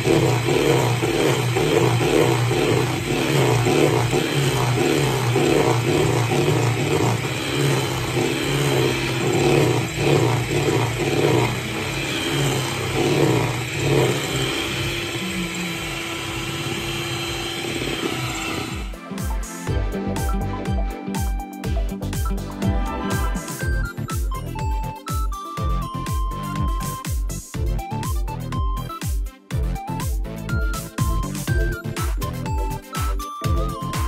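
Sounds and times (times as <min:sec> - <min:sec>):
electric hand mixer whirring: 0:00.0 - 0:19.0
background music with steady beat: 0:00.0 - 0:34.0.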